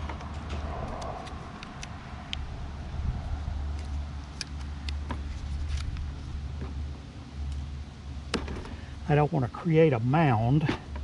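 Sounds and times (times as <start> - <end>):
steady low rumble: 0.0 - 10.3
scissors snipping tape: 0.8 - 2.4.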